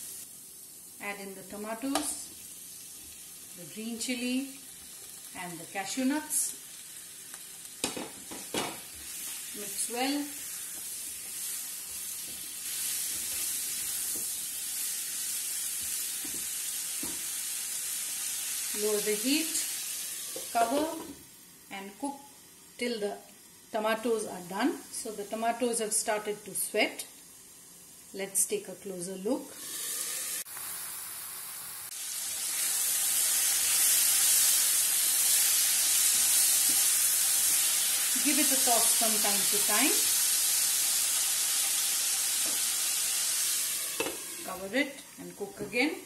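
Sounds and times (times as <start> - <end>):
vegetables sizzling in oil: 0.0 - 46.0.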